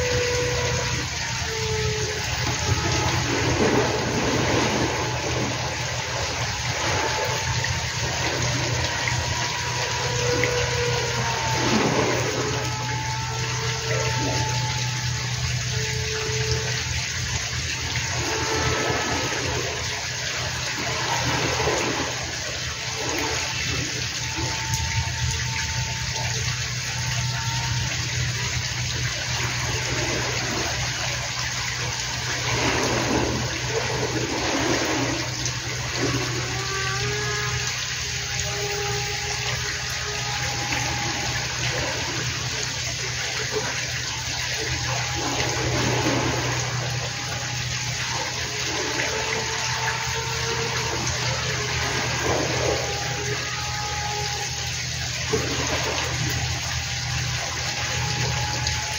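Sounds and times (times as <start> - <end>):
faint electric motor hum: 0.0 - 58.9
wind buffeting microphone: 2.2 - 9.2.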